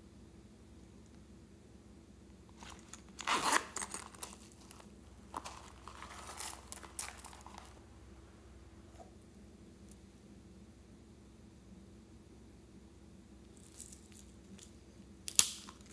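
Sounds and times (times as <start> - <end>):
zip opening: 2.6 - 4.5
plastic crinkling: 2.6 - 7.8.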